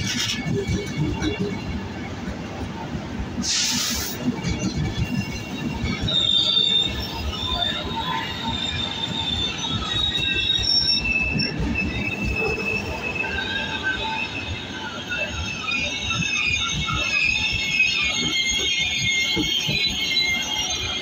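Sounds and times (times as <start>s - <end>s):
train wheels rumbling: 0.0s - 21.0s
high wheel squeal: 3.4s - 21.0s.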